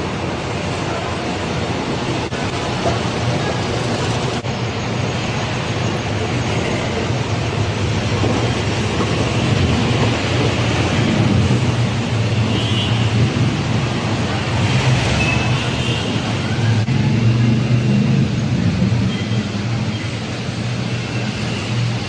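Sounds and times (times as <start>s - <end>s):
road noise hiss: 0.0s - 22.0s.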